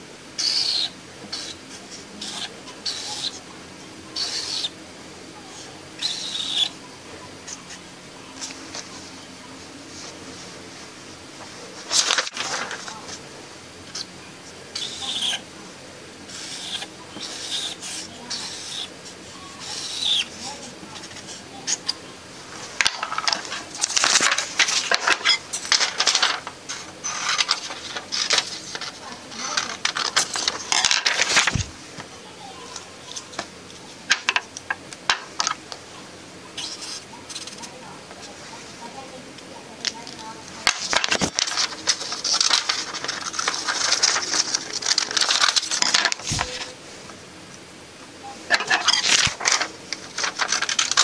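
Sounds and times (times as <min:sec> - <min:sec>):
paper rustling and crinkling: 0:11.5 - 0:13.2, 0:22.5 - 0:31.8, 0:39.9 - 0:46.8, 0:48.5 - 0:51.0.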